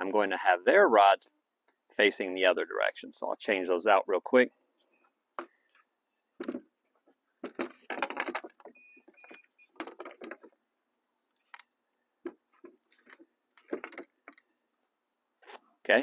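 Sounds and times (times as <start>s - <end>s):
fishing rods rattling in plastic holder: 7.4s - 8.7s, 9.8s - 10.6s, 12.5s - 14.4s.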